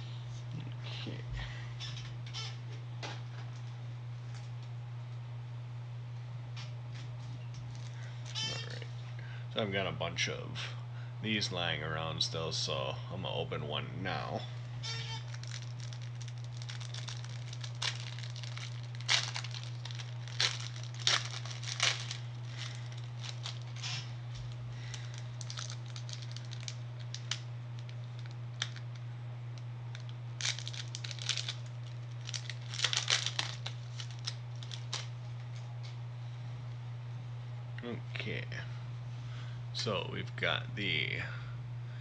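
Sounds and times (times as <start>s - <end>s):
steady low hum: 0.0s - 42.0s
wrapper tearing and crinkling: 7.7s - 8.8s, 14.9s - 29.0s, 29.9s - 35.1s.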